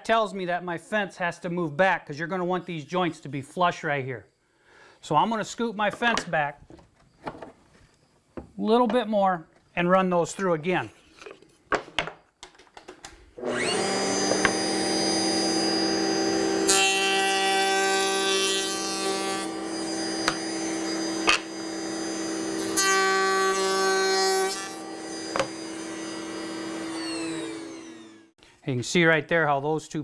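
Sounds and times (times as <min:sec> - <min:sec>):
router cutting wood: 0:13.4 - 0:28.4.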